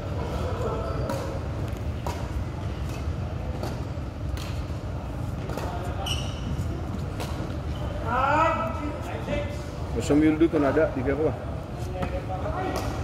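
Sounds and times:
shoe squeak on court: 0.7 - 1.4, 5.9 - 6.8.

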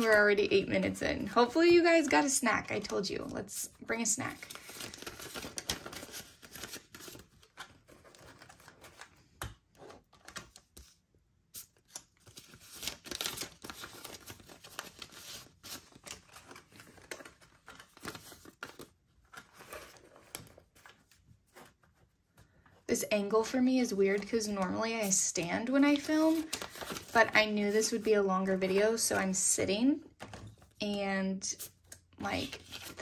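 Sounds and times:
paper banknotes rustling: 4.4 - 9.2, 11.6 - 22.1, 24.1 - 29.1.

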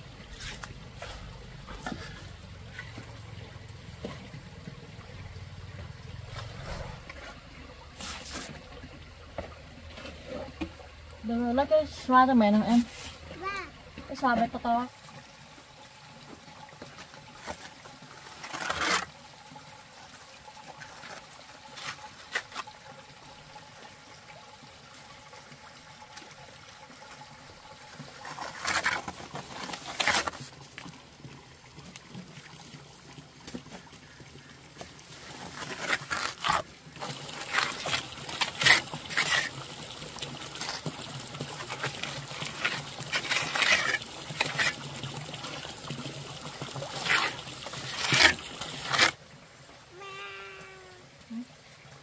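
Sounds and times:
plastering float scraping wet mortar: 0.2 - 3.2, 6.2 - 8.7, 17.1 - 19.2, 20.8 - 22.8, 28.1 - 30.7, 35.1 - 45.8, 46.5 - 49.2.

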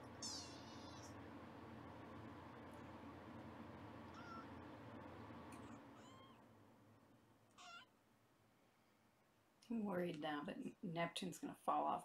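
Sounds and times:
kittens mewing: 0.2 - 1.1, 4.1 - 4.5, 7.6 - 7.9.

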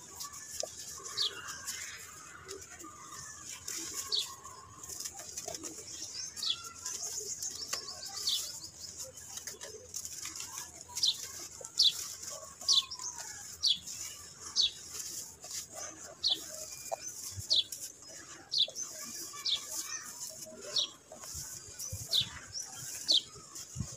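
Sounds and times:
bird chirping: 10.9 - 23.6.

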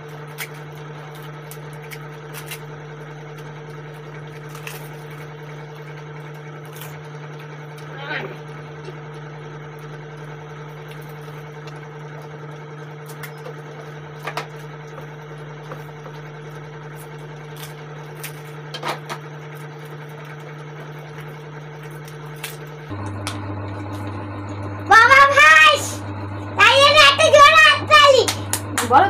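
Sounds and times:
crisp shells cracking: 0.0 - 7.8, 16.8 - 22.9
low machine hum: 0.0 - 29.0.

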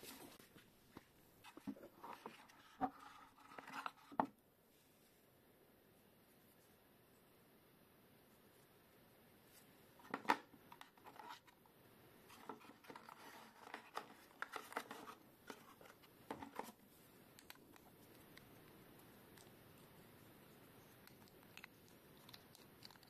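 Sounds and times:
packaging being handled: 12.3 - 16.8.

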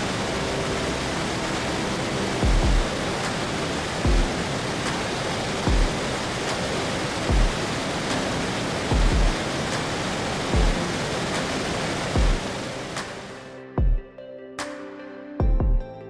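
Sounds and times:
waterfall rushing: 0.0 - 13.6
background music: 0.0 - 16.0
deep kick drum: 2.4 - 3.0, 4.1 - 4.4, 5.7 - 6.0, 7.3 - 7.6, 8.9 - 9.4, 10.6 - 10.8, 12.2 - 12.4, 13.8 - 14.1, 15.4 - 15.9.

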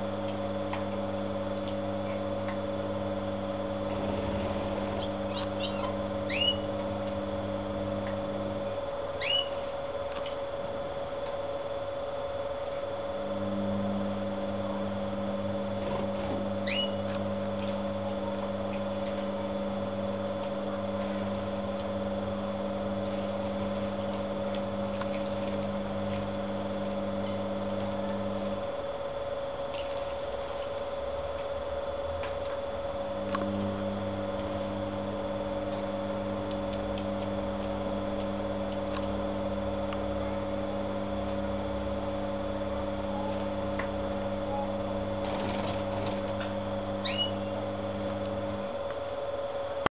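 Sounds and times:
electrical motor hum: 0.0 - 49.9
constant high tone: 47.0 - 47.6.

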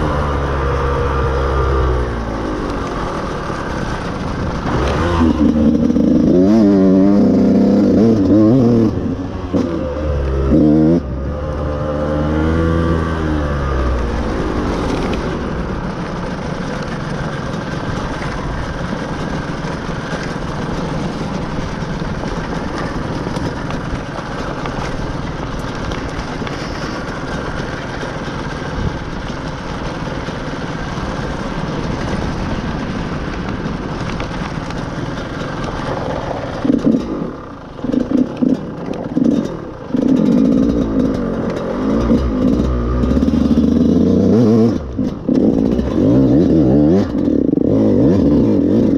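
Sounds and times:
dirt bike engine revving: 0.0 - 15.5, 35.0 - 48.9.

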